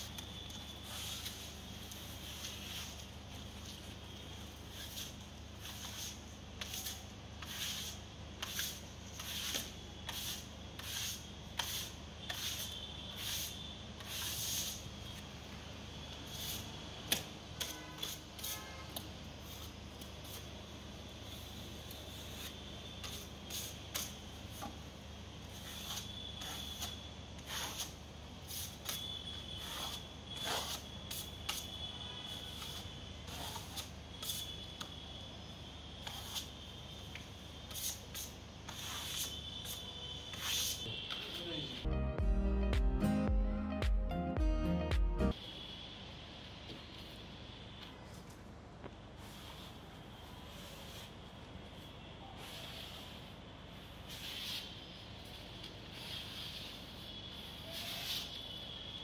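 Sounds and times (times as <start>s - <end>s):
trowel scraping wet screed: 0.8s - 3.9s, 4.6s - 14.8s, 25.5s - 31.7s, 32.3s - 34.5s, 36.0s - 36.6s, 37.7s - 40.8s, 52.4s - 58.5s.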